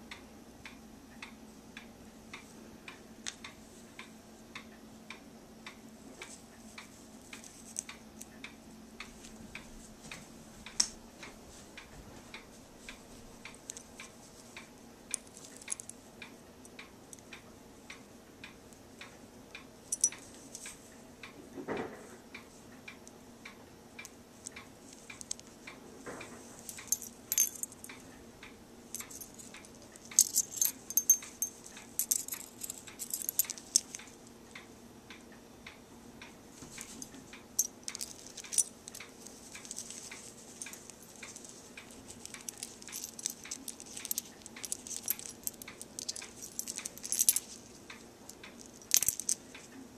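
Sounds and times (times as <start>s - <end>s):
faint steady ticking: 0.0s - 10.9s, 11.7s - 21.4s, 22.2s - 25.8s, 26.7s - 49.9s
beads and metal charms jingling: 15.1s - 15.9s, 26.6s - 28.0s, 28.9s - 34.1s, 36.8s - 49.4s.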